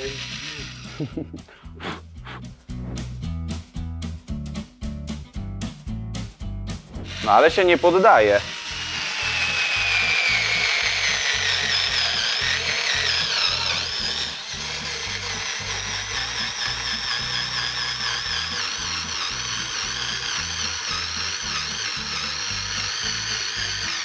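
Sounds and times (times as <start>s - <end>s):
screw grinding into sheet metal: 0.0s - 1.0s, 7.0s - 24.0s
cordless screwdriver whining: 0.0s - 1.1s, 7.0s - 24.0s
music with steady beat: 0.0s - 7.4s.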